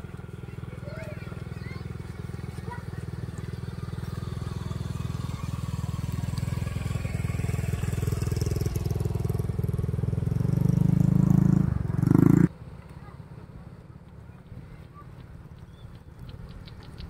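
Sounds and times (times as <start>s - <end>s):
small engine running: 0.0s - 12.6s.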